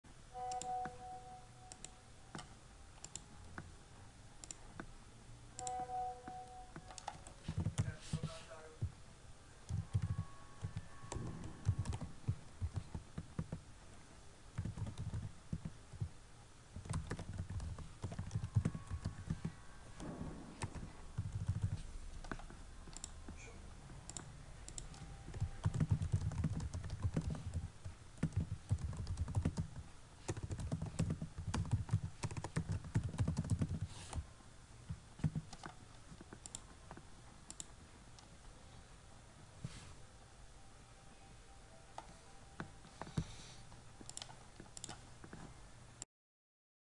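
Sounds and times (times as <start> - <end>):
typing on a keyboard: 5.6 - 7.9, 9.7 - 13.6, 14.5 - 16.1, 16.8 - 23.2, 24.1 - 34.2, 35.2 - 37.7, 44.0 - 45.4.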